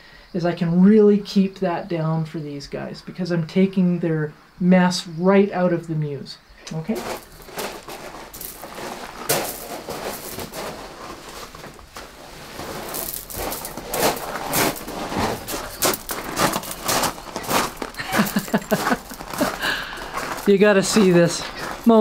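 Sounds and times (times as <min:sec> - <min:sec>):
footsteps on gravel: 0:06.8 - 0:22.0
plastic mat being handled: 0:07.0 - 0:19.6.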